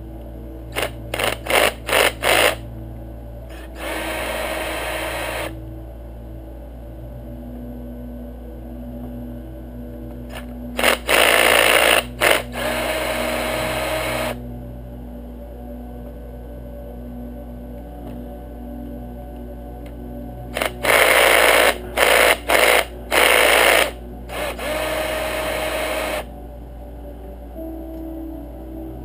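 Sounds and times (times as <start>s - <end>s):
cordless drill driver whirring: 0.8s - 2.6s, 3.5s - 5.6s, 10.3s - 14.4s, 20.6s - 26.3s.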